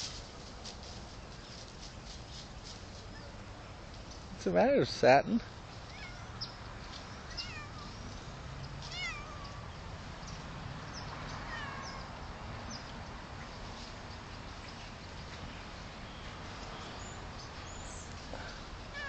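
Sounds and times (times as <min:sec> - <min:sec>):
cat meowing: 0:05.9 - 0:06.4, 0:07.3 - 0:07.9, 0:08.9 - 0:09.6, 0:11.5 - 0:12.1.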